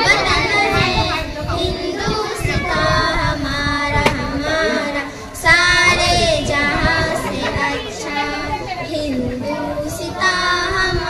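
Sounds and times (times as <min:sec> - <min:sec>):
child singing: 0:00.0 - 0:11.0.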